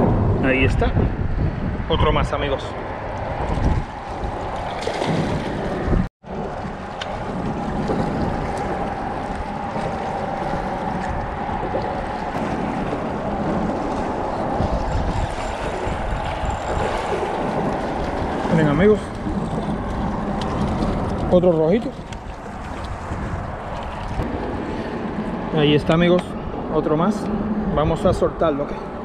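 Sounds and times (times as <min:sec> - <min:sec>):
wind buffeting microphone: 0:00.0 - 0:29.0
waves lapping against rocks: 0:03.4 - 0:25.8.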